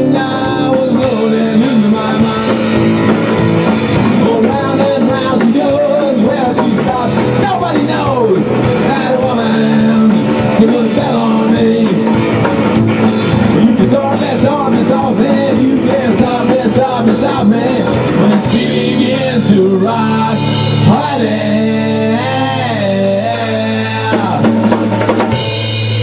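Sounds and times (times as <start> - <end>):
rock band playing live: 0.0 - 26.0.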